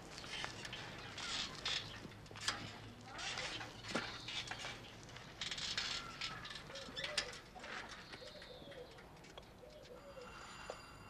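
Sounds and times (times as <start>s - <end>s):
birdsong chirping: 6.0s - 10.5s.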